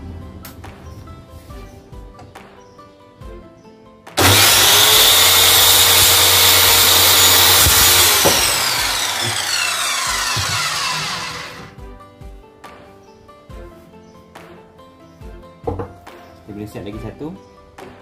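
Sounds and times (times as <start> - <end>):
circular saw cutting wood: 4.2 - 11.7
saw blade winding down: 4.2 - 11.7.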